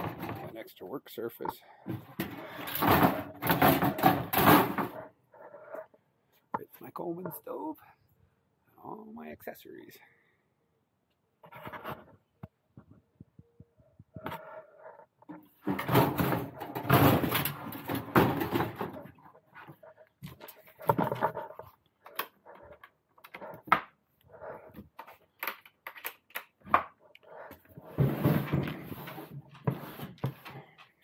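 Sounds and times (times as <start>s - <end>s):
stove scraping into wooden box: 27.5s - 30.6s.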